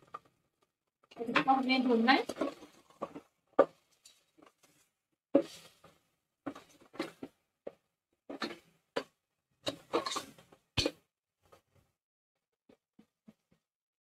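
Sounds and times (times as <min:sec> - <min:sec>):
spoon scraping a steel pot: 0:09.7 - 0:10.3.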